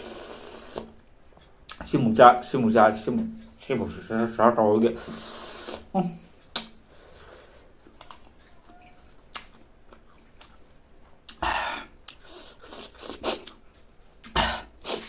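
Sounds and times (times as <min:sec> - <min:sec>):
breathy hisses and mouth noises: 0:00.0 - 0:01.0, 0:05.0 - 0:06.0, 0:11.3 - 0:13.6, 0:14.2 - 0:15.0
person chewing fruit: 0:05.2 - 0:15.0.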